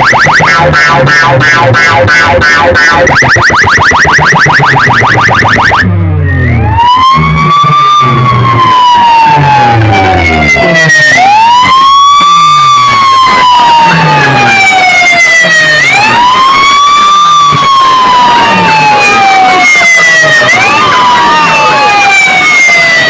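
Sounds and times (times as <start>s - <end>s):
falling bass tones: 0.0s - 14.2s
wailing siren effect: 0.0s - 23.0s.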